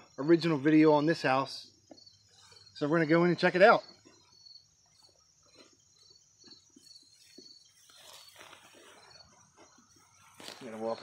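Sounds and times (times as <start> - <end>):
crickets chirping: 0.0 - 11.0
footsteps through grass: 4.0 - 11.0.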